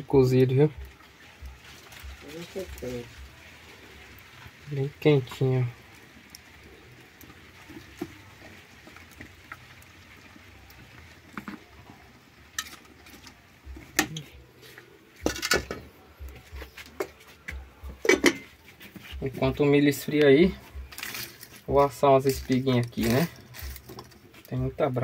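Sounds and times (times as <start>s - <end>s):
pot and dishes clinking: 15.2s - 15.9s, 17.9s - 18.6s.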